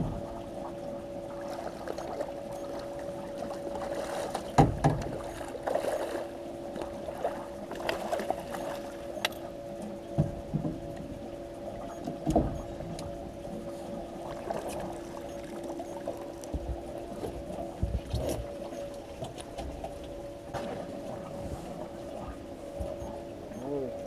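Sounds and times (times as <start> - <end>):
steady low hum: 0.0 - 24.0
water splashing and sloshing: 0.0 - 24.0
dull knocks against boat: 4.3 - 5.3, 10.1 - 11.0, 12.0 - 12.7, 17.8 - 18.5.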